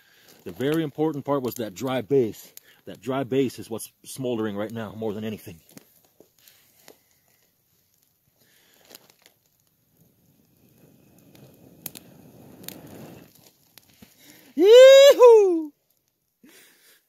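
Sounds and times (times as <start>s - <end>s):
burning twigs crackling: 0.0s - 17.0s
person blowing on embers: 6.1s - 17.0s.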